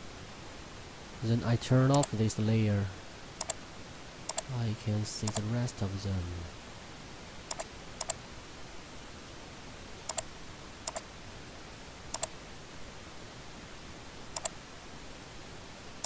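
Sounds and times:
steady low hiss: 0.0 - 16.0
computer mouse button clicking: 7.5 - 8.2.

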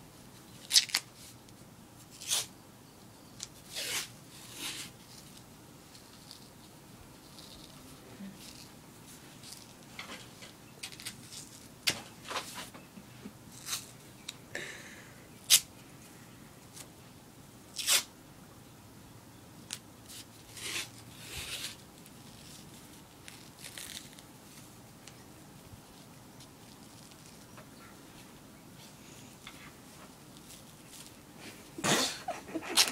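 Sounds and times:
tape ripping off roll: 2.2 - 2.5, 3.5 - 5.0, 17.8 - 18.1, 19.7 - 21.8.

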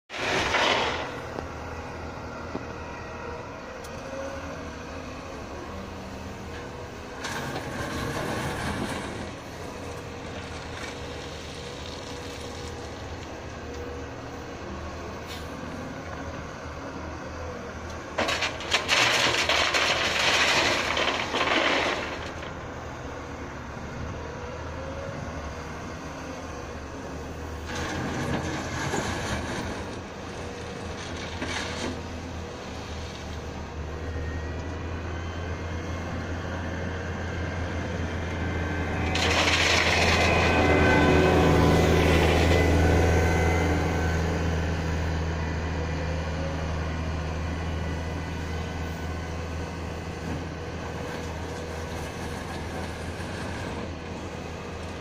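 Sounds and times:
gravel rattling into steel trailer: 0.1 - 1.4, 18.1 - 23.0, 27.6 - 30.2, 30.8 - 32.1, 38.9 - 43.0
excavator diesel engine: 0.1 - 55.0.

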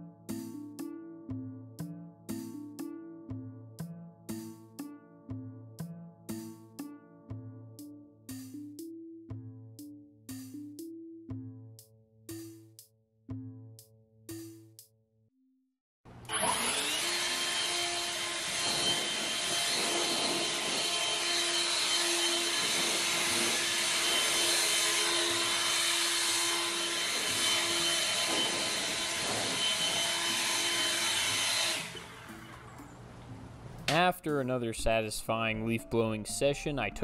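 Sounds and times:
leaf blower running: 16.1 - 32.8.

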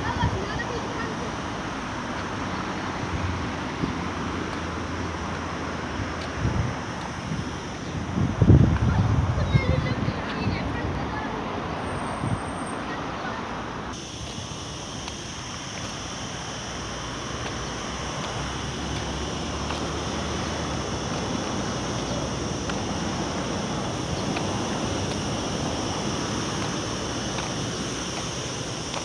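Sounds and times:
wind on microphone: 6.0 - 11.2
high hiss: 13.7 - 29.0.

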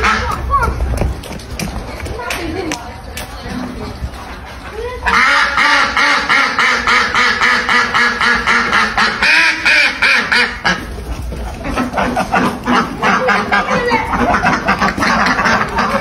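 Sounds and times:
ducks quacking: 0.0 - 0.7, 3.8 - 16.0.

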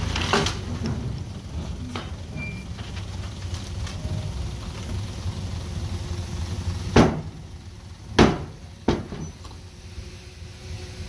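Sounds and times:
bulldozer engine rumbling: 0.0 - 11.0
loud knocks: 6.9 - 7.4, 8.2 - 9.2.

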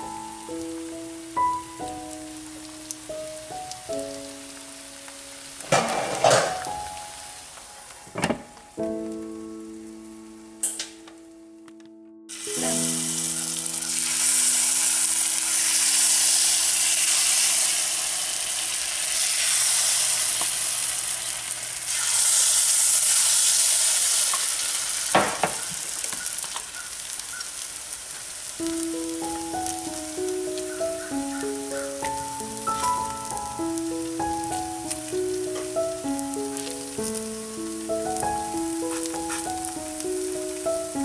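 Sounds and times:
soft background music: 0.0 - 17.5, 28.6 - 41.0
batter sizzling in hot oil: 12.3 - 41.0.

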